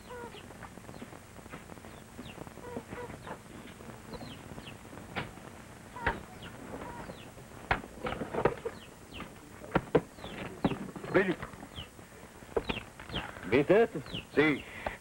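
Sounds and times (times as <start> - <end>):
chickens chirping: 0.0 - 5.0, 5.8 - 15.0.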